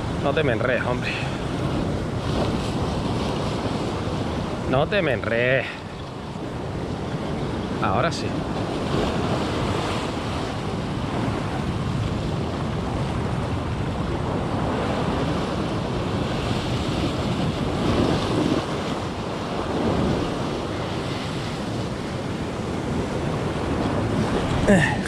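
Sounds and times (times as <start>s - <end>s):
surf washing against shore: 0.0s - 25.0s
wind buffeting microphone: 0.0s - 25.0s.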